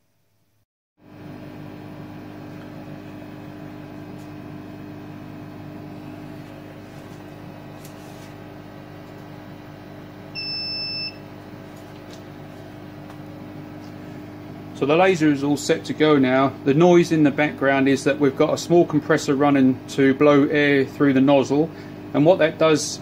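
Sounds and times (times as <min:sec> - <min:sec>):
fume extractor running: 0:01.0 - 0:23.0
air compressor humming: 0:01.1 - 0:23.0
short electronic beep: 0:10.4 - 0:11.2.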